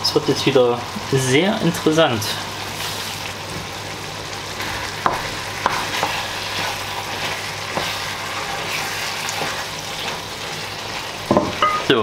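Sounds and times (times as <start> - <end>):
meat sauce sizzling in a frying pan: 0.0 - 12.0
wooden spoon knocking on pan: 5.0 - 6.2, 11.2 - 11.9.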